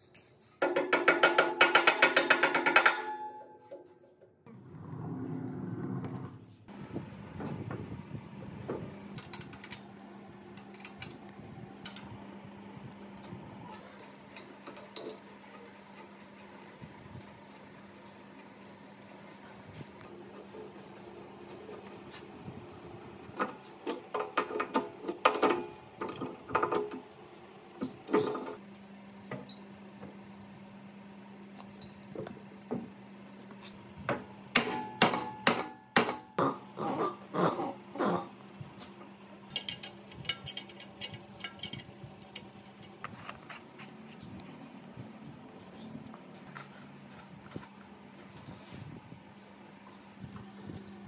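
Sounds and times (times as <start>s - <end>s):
steady low hum: 2.9s - 51.0s
metal tools clinking and knocking: 39.5s - 43.0s.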